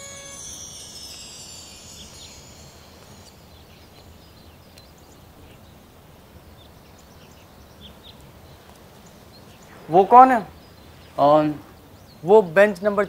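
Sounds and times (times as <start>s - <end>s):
bird chirps: 0.0s - 5.8s.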